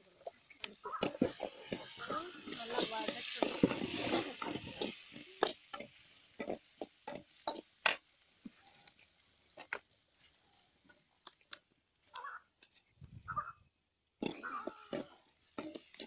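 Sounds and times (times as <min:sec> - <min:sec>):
animal grunting calls: 0:14.2 - 0:15.8.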